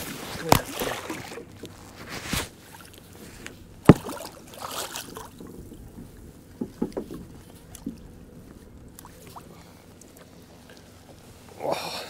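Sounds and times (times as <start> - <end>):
water splashing: 0.0 - 12.0
loud knock against boat: 3.8 - 4.3, 6.6 - 7.2
light knocks and clatters: 5.2 - 8.2.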